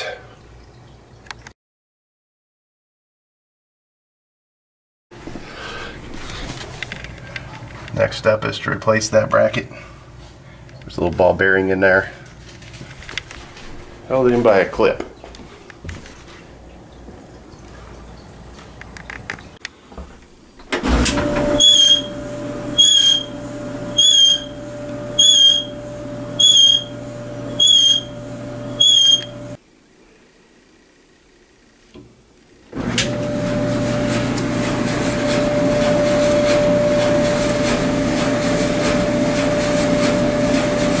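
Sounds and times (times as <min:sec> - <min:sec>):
clothes dryer humming: 0:05.2 - 0:18.9, 0:19.8 - 0:29.6, 0:31.9 - 0:41.0
dryer squeaking: 0:20.7 - 0:29.6, 0:32.7 - 0:41.0.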